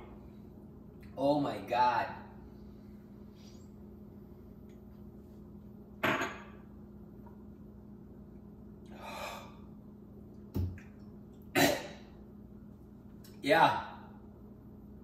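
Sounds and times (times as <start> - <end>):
man exhaling harshly: 8.9 - 9.7
man coughing: 11.6 - 12.0.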